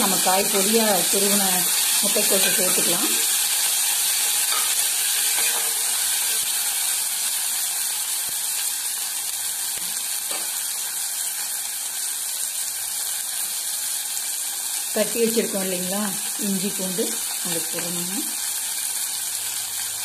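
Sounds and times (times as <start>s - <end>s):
vegetables sizzling in oil: 0.0s - 20.0s
metal ladle scraping pot: 4.3s - 6.4s.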